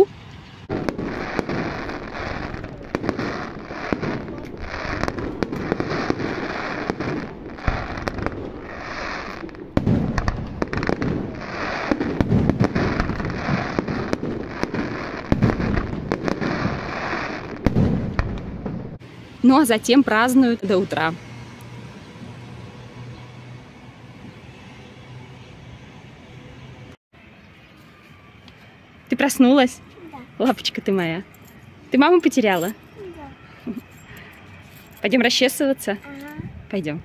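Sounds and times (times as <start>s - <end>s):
fireworks bangs and crackling: 0.7s - 19.0s
heavy fireworks booms: 0.7s - 19.0s.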